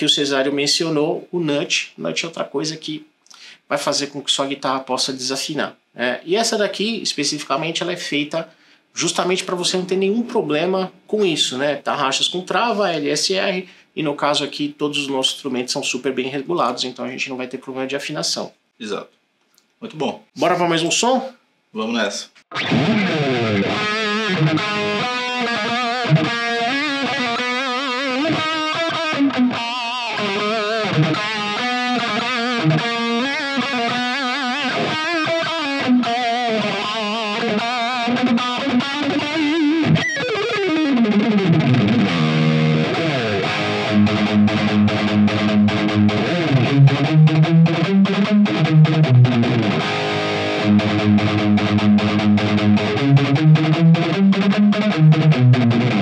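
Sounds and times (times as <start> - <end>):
distorted electric guitar: 22.4 - 56.0.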